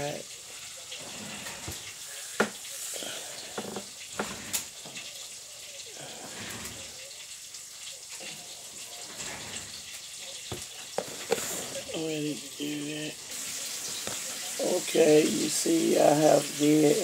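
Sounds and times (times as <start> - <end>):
fish sizzling in hot oil: 0.0 - 17.0.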